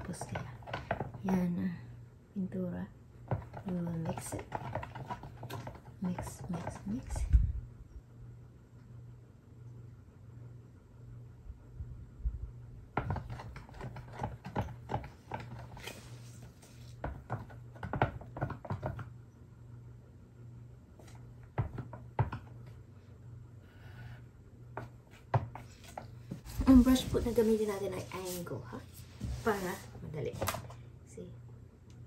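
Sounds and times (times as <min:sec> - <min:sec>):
low steady hum: 0:00.0 - 0:32.0
stir stick scraping in paint can: 0:03.3 - 0:07.2, 0:13.0 - 0:17.5.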